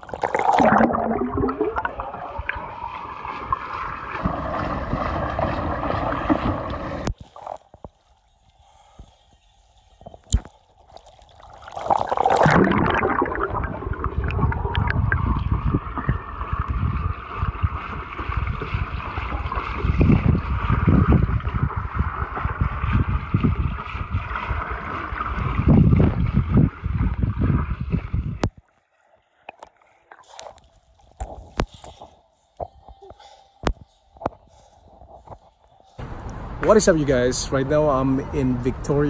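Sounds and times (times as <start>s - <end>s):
loud underwater churning: 0.0s - 7.1s, 11.7s - 27.8s
muffled underwater rushing and bubbling: 0.0s - 7.1s, 11.6s - 28.6s.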